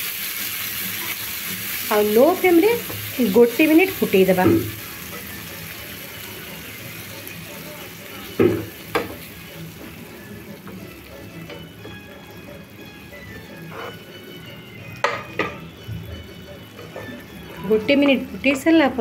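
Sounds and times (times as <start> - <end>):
dal sizzling and bubbling: 0.0 - 19.0
metal spoon knocking pan: 4.2 - 4.8, 8.3 - 9.3, 15.0 - 15.7, 17.8 - 18.8.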